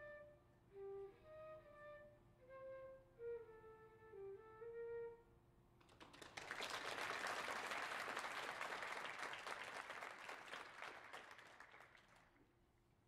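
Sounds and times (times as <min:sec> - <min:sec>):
flute playing: 0:00.0 - 0:05.4
audience applause: 0:05.9 - 0:12.4.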